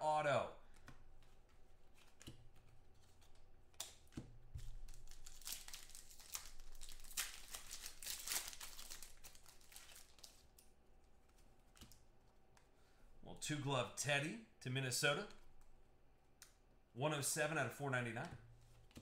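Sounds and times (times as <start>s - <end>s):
foil wrapper crinkling and tearing: 4.6s - 10.7s.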